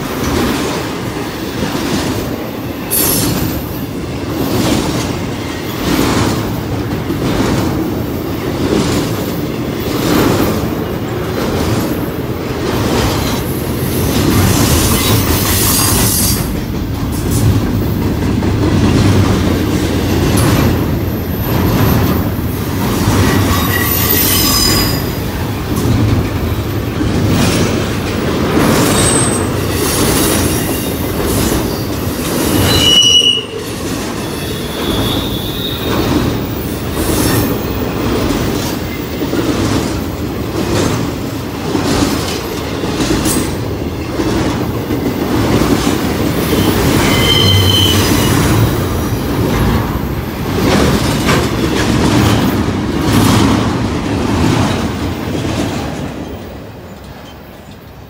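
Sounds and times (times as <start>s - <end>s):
freight train rumbling past: 0.0s - 58.0s
wheels clattering over rail joints: 3.0s - 32.9s, 33.5s - 57.9s
high-pitched wheel squeals: 23.5s - 25.1s, 32.6s - 33.6s, 46.6s - 48.5s.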